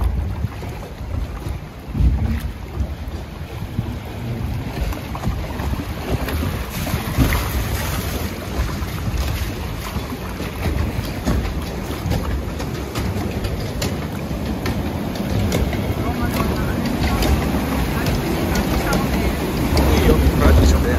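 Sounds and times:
water rushing against boat: 0:00.0 - 0:20.9
wind buffeting microphone: 0:00.0 - 0:20.9.

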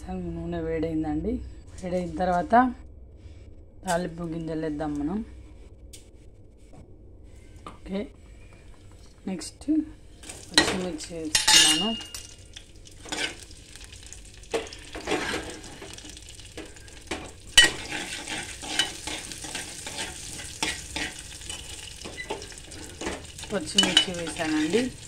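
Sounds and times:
chillies sizzling in hot oil: 0:10.2 - 0:25.0
spoon scraping a metal pan: 0:10.6 - 0:12.2, 0:13.0 - 0:13.5, 0:15.0 - 0:15.8, 0:16.6 - 0:25.0
spoon clinking on metal: 0:10.6 - 0:12.4, 0:17.6 - 0:22.4, 0:23.6 - 0:24.8.

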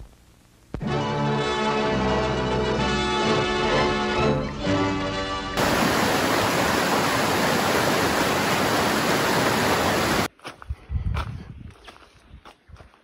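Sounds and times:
creek rushing over rocks: 0:05.6 - 0:10.3
footsteps on dirt: 0:10.2 - 0:13.0.

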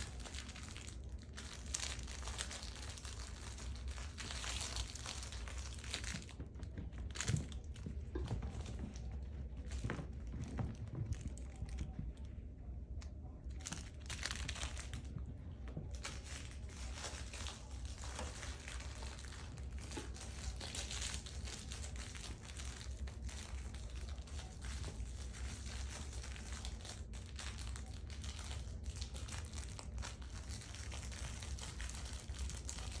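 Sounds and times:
puppies scuffling with fabric toys: 0:00.0 - 0:12.4, 0:13.6 - 0:27.0
crinkly rustle and scrapes: 0:00.0 - 0:33.0
steady low hum: 0:00.0 - 0:33.0.

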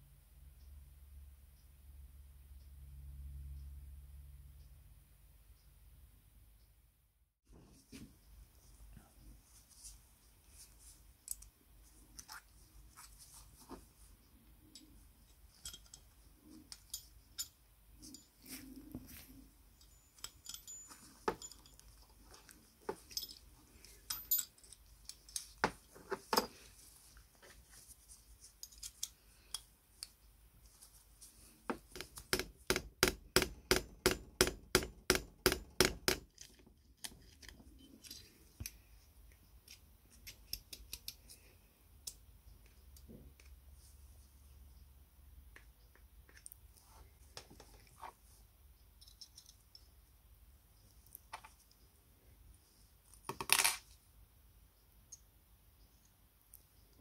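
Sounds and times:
metal parts clicking together: 0:14.7 - 0:18.4, 0:19.8 - 0:26.5, 0:28.6 - 0:30.2, 0:39.6 - 0:42.2, 0:49.0 - 0:49.9.

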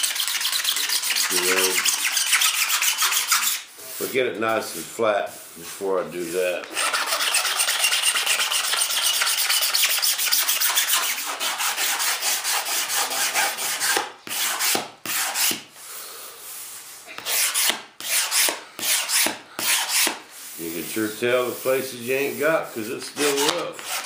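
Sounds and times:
razor blade scraping resin: 0:00.0 - 0:03.7, 0:06.7 - 0:15.6, 0:21.1 - 0:24.0.

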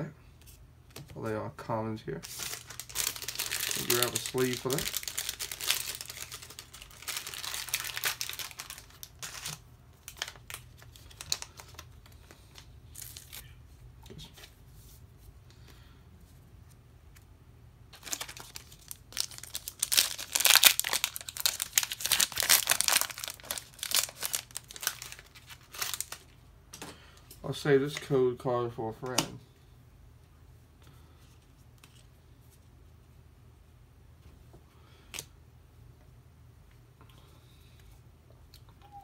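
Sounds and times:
plastic sleeves crinkling: 0:02.2 - 0:13.6, 0:17.9 - 0:26.4.

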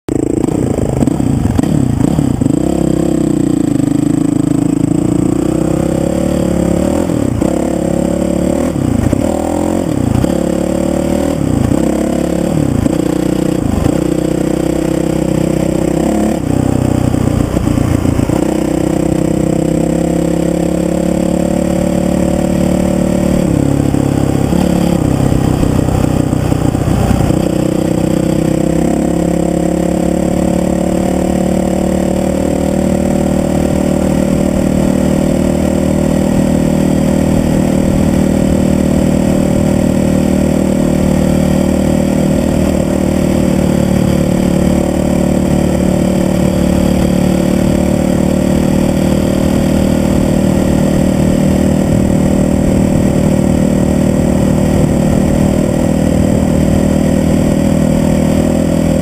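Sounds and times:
dirt bike engine revving: 0:00.1 - 0:59.0.

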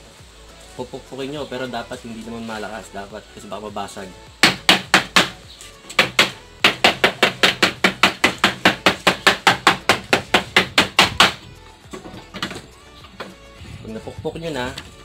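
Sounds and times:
hammer tapping on laminate: 0:04.4 - 0:11.4.

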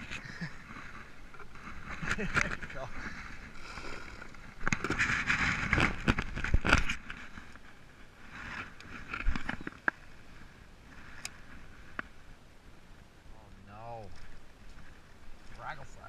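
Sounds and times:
boat hull scraping over brush: 0:00.0 - 0:12.1.

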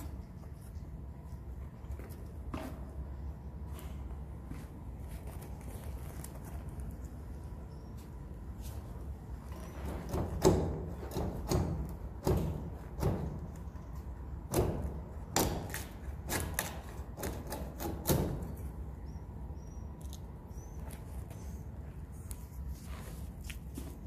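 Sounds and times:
faint high bird chirps: 0:07.6 - 0:08.2, 0:19.0 - 0:21.6
knocks and thuds on wooden rafters: 0:09.7 - 0:18.6.

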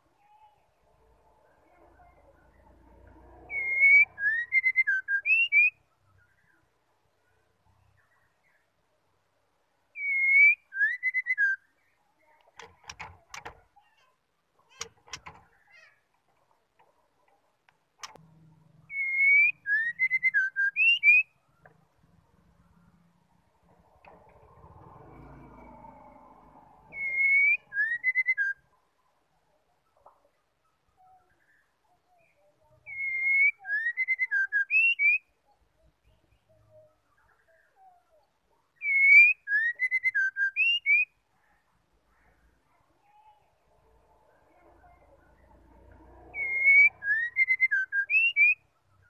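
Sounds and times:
bird whistling song: 0:03.5 - 0:06.6, 0:09.9 - 0:12.0, 0:18.9 - 0:21.4, 0:26.9 - 0:28.7, 0:32.2 - 0:35.4, 0:38.8 - 0:41.2, 0:46.3 - 0:49.0.

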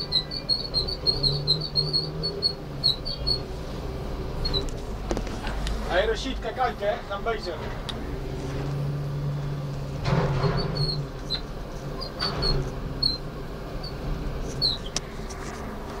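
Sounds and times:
short high squeaks: 0:00.0 - 0:03.7, 0:04.3 - 0:04.8, 0:10.0 - 0:15.0
diesel engine running: 0:00.0 - 0:16.0.

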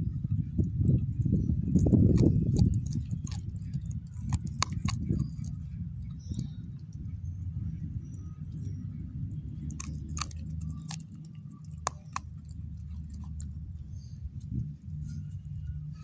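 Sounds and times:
steady low hum: 0:00.0 - 0:16.0
dog chewing a bone: 0:01.6 - 0:07.0, 0:09.5 - 0:15.4
bone crunching and cracking: 0:01.7 - 0:06.5, 0:09.6 - 0:13.6.

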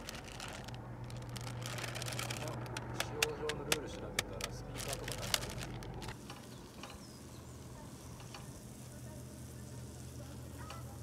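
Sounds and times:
onions sizzling softly: 0:06.2 - 0:11.0.

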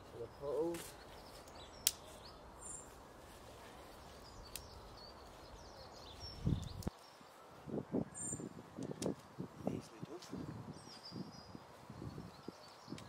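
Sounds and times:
bird chirping: 0:00.0 - 0:03.0, 0:03.9 - 0:09.1.

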